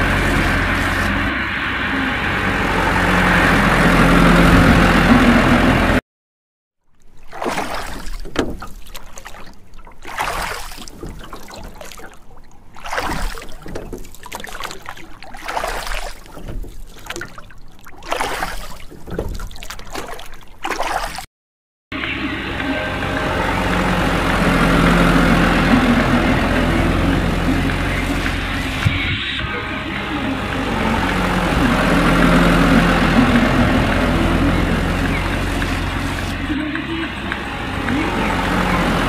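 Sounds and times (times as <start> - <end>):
water sloshing and splashing: 0.0 - 5.5, 6.8 - 21.3, 22.0 - 39.0
vehicle engine: 0.0 - 6.0, 21.9 - 39.0.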